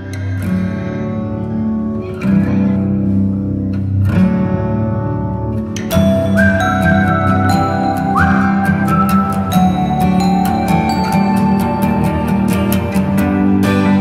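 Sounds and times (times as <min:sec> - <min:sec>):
strummed guitar chords: 0:00.0 - 0:14.0
held melody line: 0:05.9 - 0:14.0.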